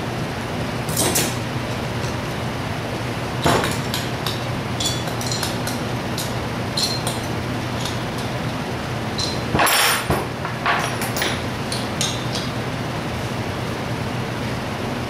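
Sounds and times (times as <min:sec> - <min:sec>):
steady low hum: 0:00.0 - 0:15.0
metal tools clinking and knocking: 0:03.4 - 0:08.4, 0:09.2 - 0:10.0.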